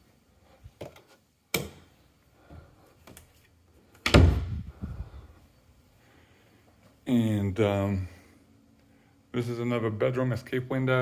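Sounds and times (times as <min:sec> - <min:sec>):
door thumping shut: 0:04.0 - 0:04.8.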